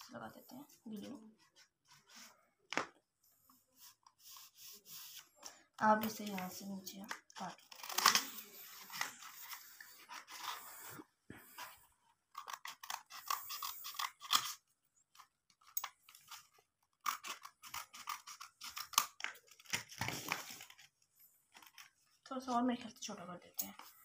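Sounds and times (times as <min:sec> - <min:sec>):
scissors snipping paper: 0:05.8 - 0:10.6, 0:12.3 - 0:20.9.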